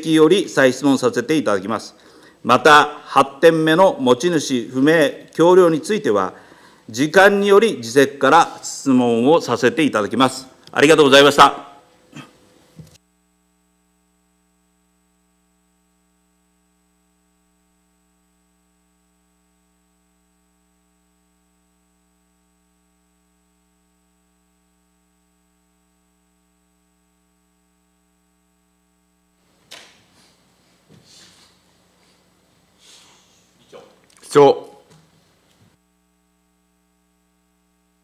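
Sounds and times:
faint electrical hum: 0:00.0 - 0:38.0.

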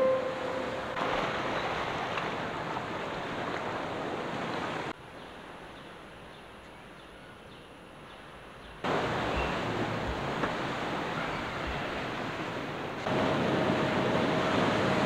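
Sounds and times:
sea waves washing on shore: 0:00.0 - 0:05.0, 0:08.8 - 0:15.0.

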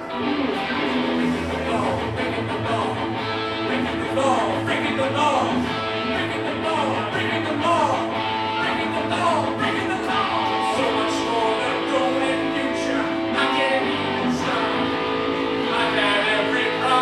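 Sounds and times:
live band playing: 0:00.0 - 0:17.0
strummed guitar: 0:00.0 - 0:17.0.

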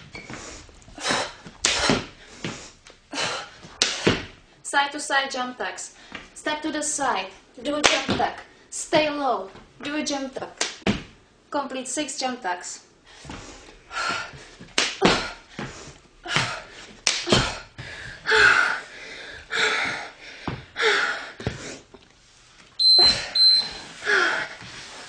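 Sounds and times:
woman breathing hard: 0:00.2 - 0:04.2, 0:13.0 - 0:21.9, 0:23.1 - 0:25.0
short high electronic beeps: 0:22.8 - 0:23.8.

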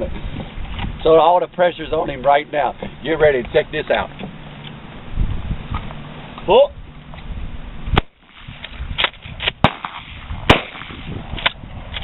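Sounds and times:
shotgun shots: 0:08.0 - 0:11.5.

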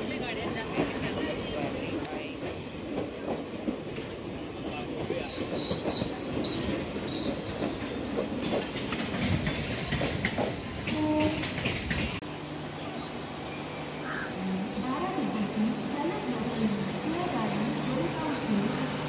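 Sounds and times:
train wheels clacking over rail joints: 0:05.0 - 0:12.2.

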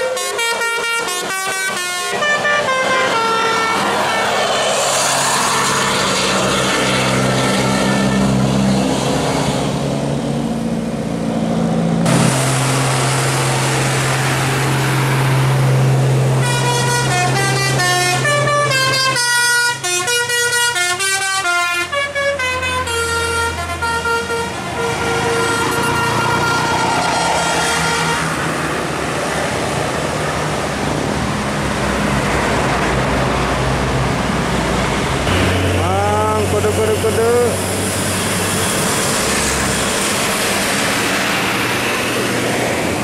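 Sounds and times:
multi-tone bus air horns: 0:00.0 - 0:04.8, 0:05.4 - 0:09.4, 0:16.3 - 0:28.6
low engine drone: 0:03.8 - 0:20.7, 0:21.6 - 0:43.0.

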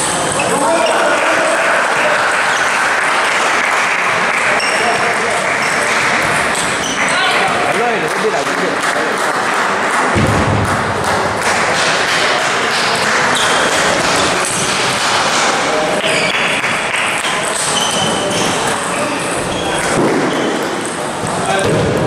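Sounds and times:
hubbub of voices: 0:00.0 - 0:22.0
short high squeaks: 0:17.6 - 0:20.6.

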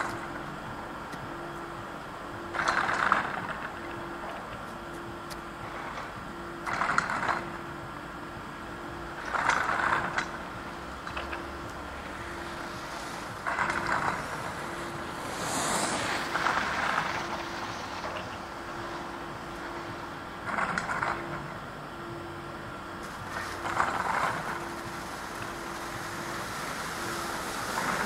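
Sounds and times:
faint steady hum: 0:00.0 - 0:28.0
skis scraping packed snow: 0:12.0 - 0:18.0, 0:23.0 - 0:28.0.

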